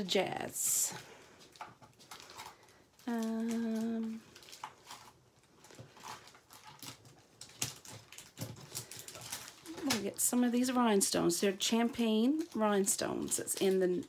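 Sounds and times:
plastic cases clicking and rattling: 1.4 - 10.3
woman humming: 3.0 - 4.2.

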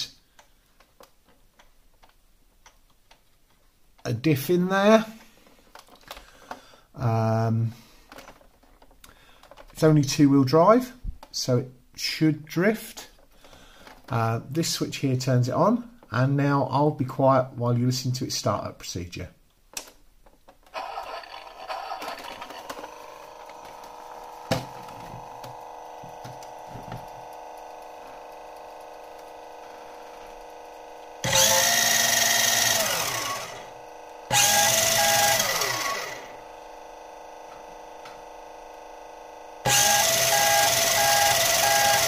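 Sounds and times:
engine sound effects from speaker: 20.8 - 28.8
electronic hum: 20.8 - 42.0.

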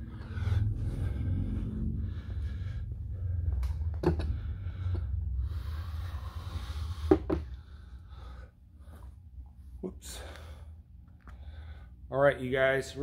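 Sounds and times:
low rumble: 0.0 - 9.8.

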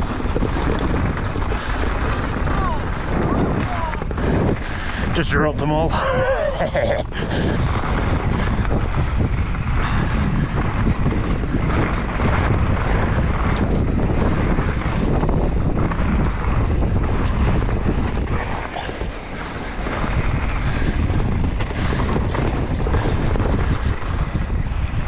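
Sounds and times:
tyre and trail noise: 0.0 - 25.0
wind buffeting microphone: 0.0 - 25.0.

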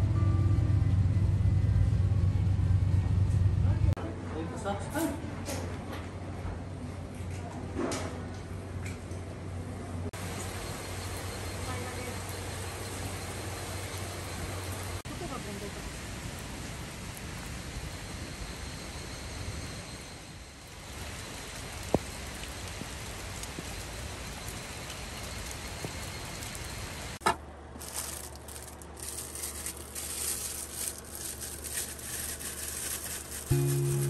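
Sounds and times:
low steady hum: 0.0 - 4.2, 27.4 - 34.0
heavy rain falling: 10.2 - 18.1, 20.6 - 27.2
food sizzling and crackling: 27.8 - 34.0.

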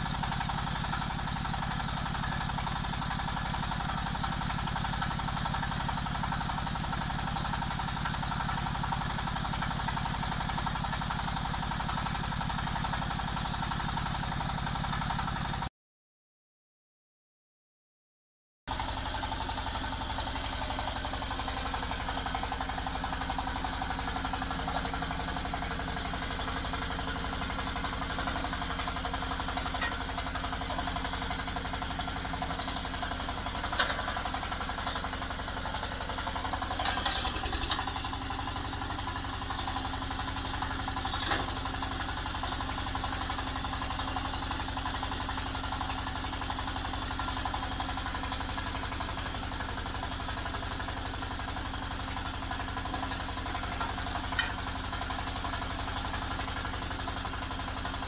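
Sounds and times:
diesel engine running: 0.0 - 15.6, 18.7 - 58.0
drill pipes knocking: 29.8 - 30.0.

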